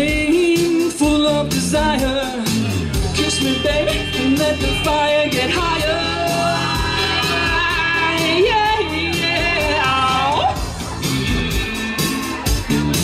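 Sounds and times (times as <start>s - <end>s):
man singing: 0.0s - 10.4s
pop-rock song over stage speakers: 0.0s - 13.0s.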